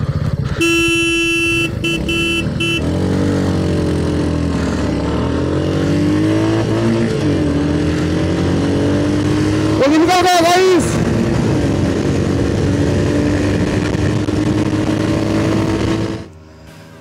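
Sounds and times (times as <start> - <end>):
motorcycle engine accelerating hard: 0.0 - 17.0
wind and road rush: 0.0 - 17.0
short horn beeps: 0.6 - 3.0.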